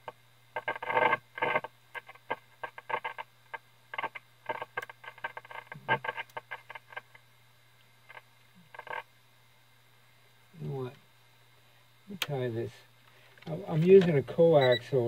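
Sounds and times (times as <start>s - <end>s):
radio hum: 0.0s - 7.3s, 8.0s - 9.1s, 12.1s - 15.0s
radio speaker crackling and popping: 0.0s - 9.2s, 12.1s - 15.0s.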